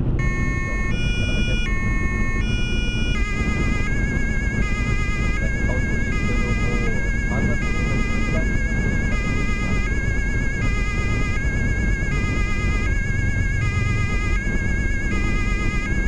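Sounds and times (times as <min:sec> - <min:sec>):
engine and road rumble: 0:00.0 - 0:16.0
two-tone police siren: 0:00.0 - 0:16.0.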